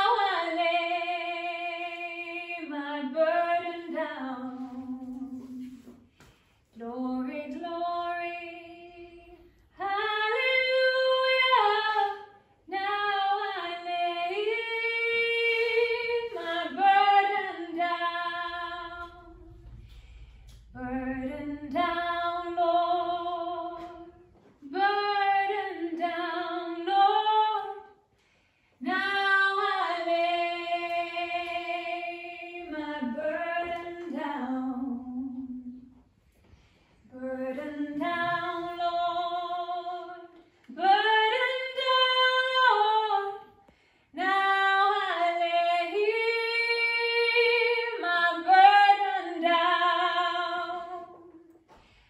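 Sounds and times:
woman singing unaccompanied: 6.8 - 19.4, 28.8 - 35.9, 37.1 - 43.5.

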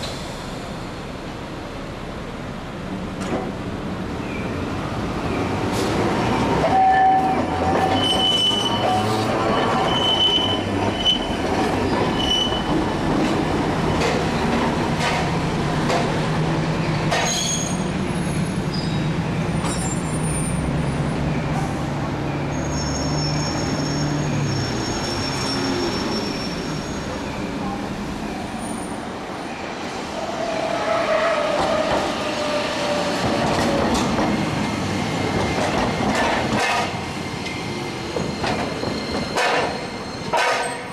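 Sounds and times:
tram low hum: 0.0 - 40.9
tram wheel squeals: 5.4 - 12.9, 16.8 - 35.3, 35.9 - 40.9.

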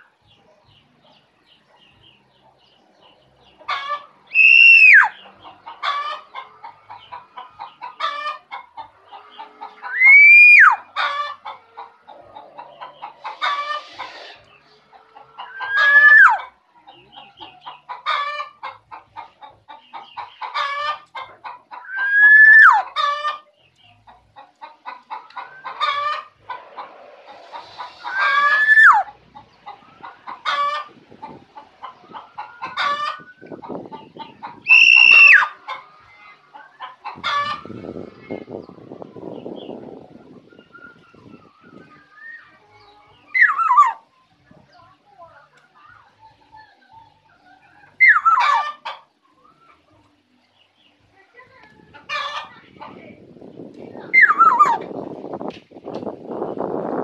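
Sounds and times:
oriole calling: 3.7 - 6.5, 9.1 - 16.5, 20.2 - 23.4, 24.9 - 30.9, 31.8 - 35.8, 43.3 - 44.1, 47.8 - 49.8, 54.1 - 55.0.

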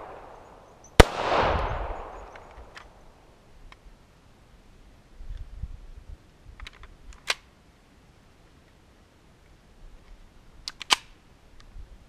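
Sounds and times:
pistol mechanism clicks: 10.7 - 11.2.

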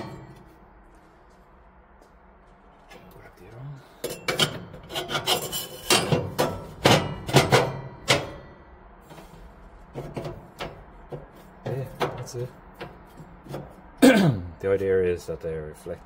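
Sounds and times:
metal plates scraping and knocking: 0.0 - 0.6, 4.0 - 14.0.

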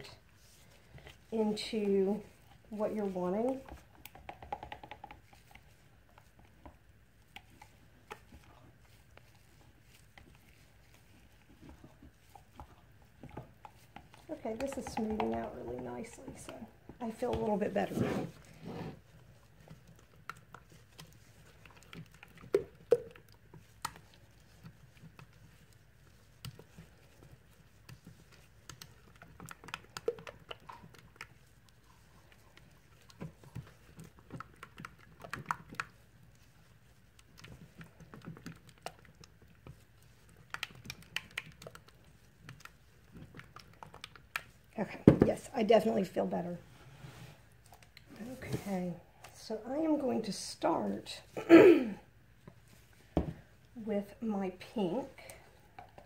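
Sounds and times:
stirring in metal cup: 0.1 - 44.8.

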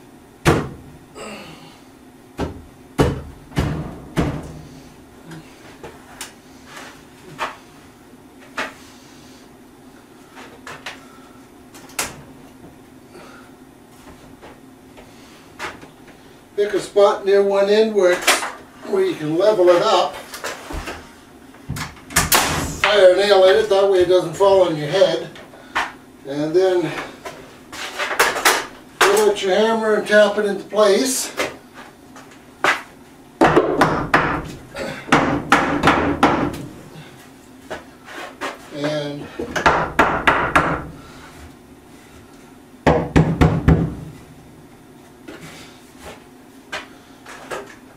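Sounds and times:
steady low hum: 0.0 - 47.9
hammer knocking on wood: 35.1 - 36.6, 39.6 - 40.9, 42.8 - 44.0.

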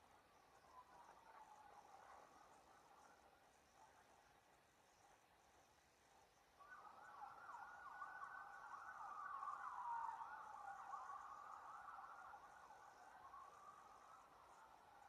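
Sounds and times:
faint emergency siren: 6.8 - 14.7.

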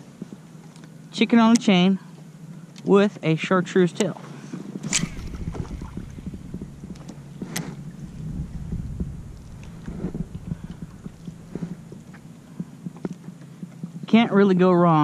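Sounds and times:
low steady rumble: 0.0 - 15.0
waves lapping against kayak hull: 4.0 - 13.6
sharp click: 4.8 - 5.5.

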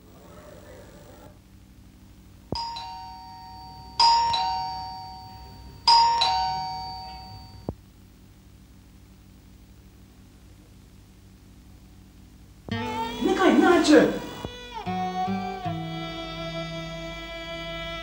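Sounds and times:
electric doorbell ding-dong chime: 2.6 - 7.7.

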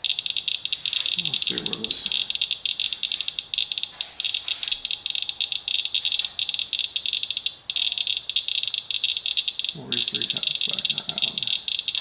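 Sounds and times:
geiger counter clicking rapidly: 0.0 - 12.0.

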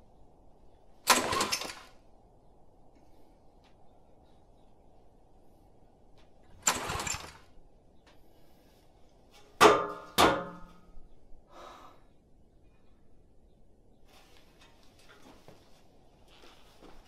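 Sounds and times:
generator engine turning over: 1.0 - 1.9, 6.5 - 7.5
recoil cord pulls: 1.1 - 2.0, 6.5 - 7.6.

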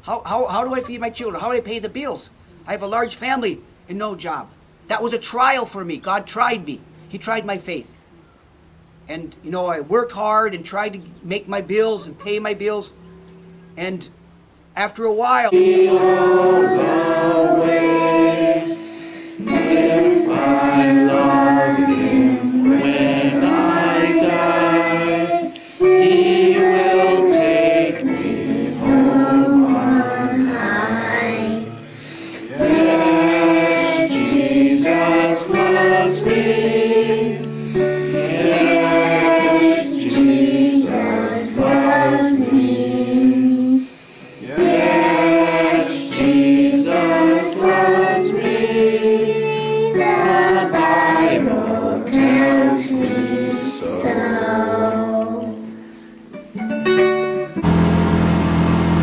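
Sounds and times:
group singing a hymn: 15.5 - 56.0.

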